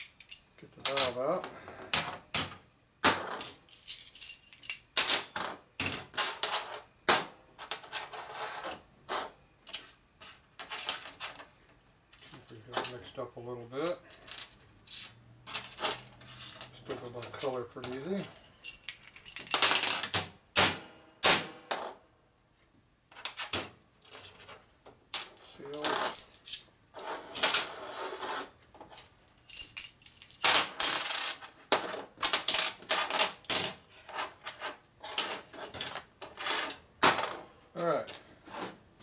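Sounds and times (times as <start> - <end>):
metal parts clinking: 0.0 - 1.1, 3.4 - 5.3, 14.2 - 20.0, 25.2 - 26.7, 28.9 - 31.1
metallic ring: 18.2 - 19.6.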